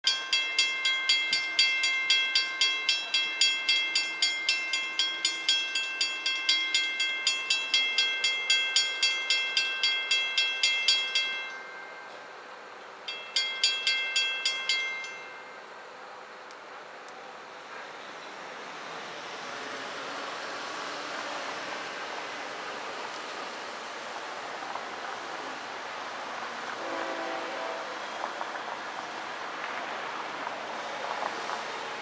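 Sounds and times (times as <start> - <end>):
crossing warning bell ringing: 0.0 - 16.0.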